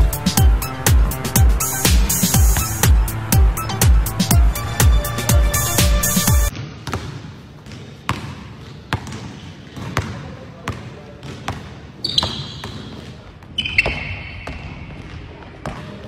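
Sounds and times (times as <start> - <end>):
basketball bouncing on wooden floor: 6.5 - 13.0
sneaker squeaks: 6.5 - 16.0.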